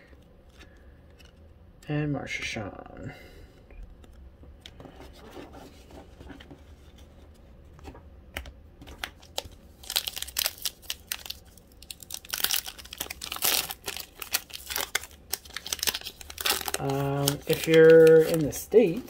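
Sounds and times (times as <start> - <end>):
foil card pack tearing: 9.0 - 19.0.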